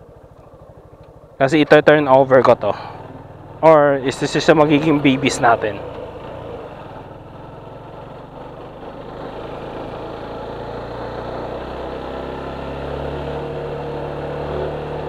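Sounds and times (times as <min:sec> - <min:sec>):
motorcycle engine accelerating: 0:00.0 - 0:15.0
road and wind noise: 0:00.0 - 0:15.0.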